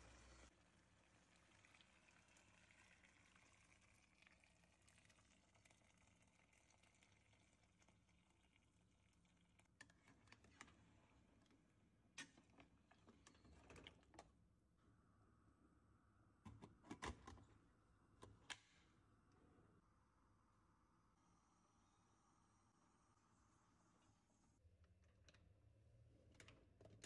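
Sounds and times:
water poured into a pot: 0:00.0 - 0:10.5.

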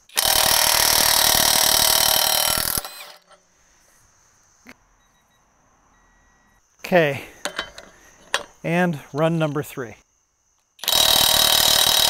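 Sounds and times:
impact wrench hammering: 0:10.8 - 0:12.0.

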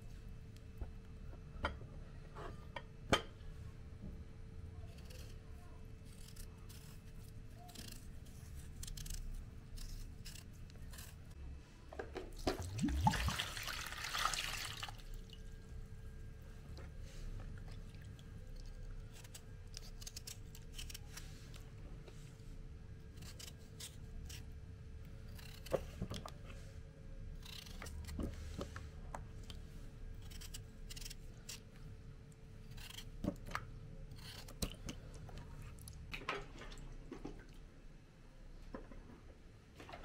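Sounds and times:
knife scraping potato peel: 0:04.8 - 0:11.4, 0:19.0 - 0:21.6, 0:23.1 - 0:24.6, 0:25.3 - 0:26.3, 0:27.4 - 0:28.7, 0:30.2 - 0:31.7, 0:32.6 - 0:33.3, 0:34.1 - 0:34.7
potato splashing into water: 0:12.4 - 0:15.4.

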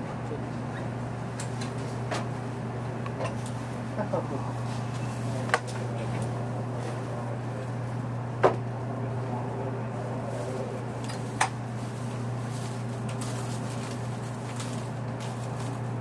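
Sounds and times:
train car interior hum: 0:00.0 - 0:16.0.

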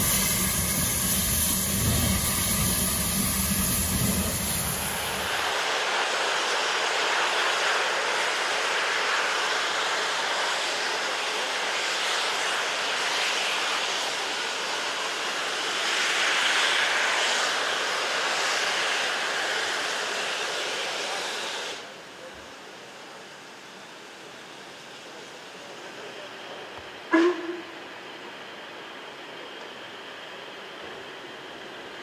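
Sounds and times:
steam hissing from safety valves: 0:00.0 - 0:23.8.

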